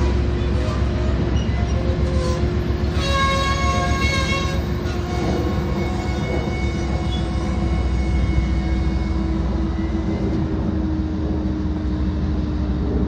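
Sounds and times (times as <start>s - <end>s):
locomotive humming: 0.0s - 13.0s
train wheels rumbling on rail: 0.0s - 13.0s.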